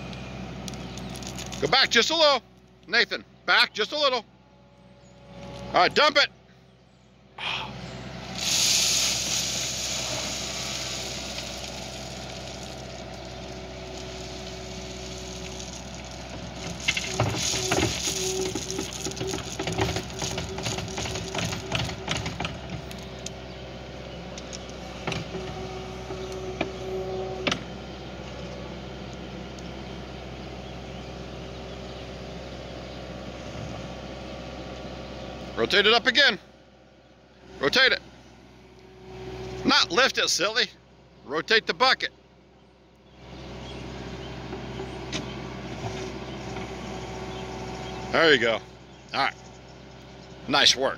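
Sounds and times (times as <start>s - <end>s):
skid steer engine running: 0.0s - 50.9s
gravel pouring from bucket: 1.0s - 1.7s, 8.3s - 22.1s
stones and steel clattering: 8.4s - 22.4s.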